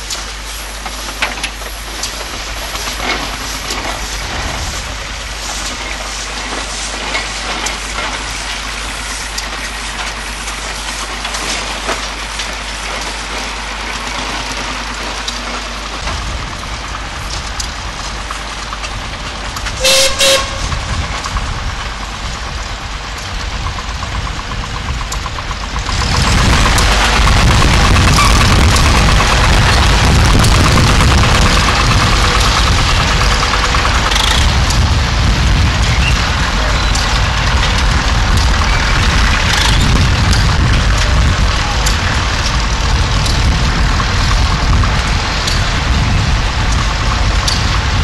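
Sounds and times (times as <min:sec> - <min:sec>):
deep tractor engine: 0:00.0 - 0:48.0
mixed engines running: 0:00.0 - 0:48.0
steam whistle blast: 0:19.8 - 0:20.7.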